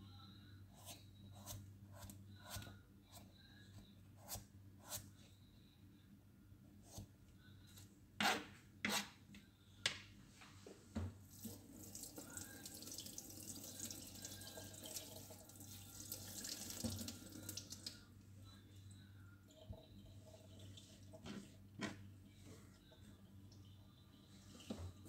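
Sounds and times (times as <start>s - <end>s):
kitchen tap running: 11.4s - 17.9s.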